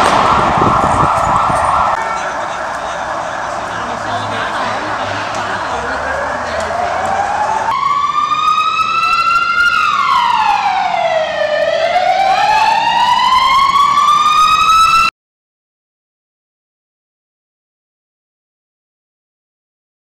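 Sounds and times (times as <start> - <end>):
noisy background: 0.0 - 15.0
police siren wailing: 0.0 - 15.1.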